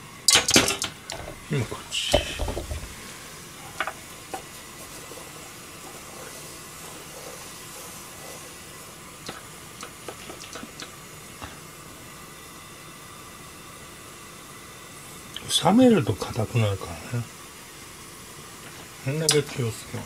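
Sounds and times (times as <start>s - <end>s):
water boiling hiss: 0.0s - 20.0s.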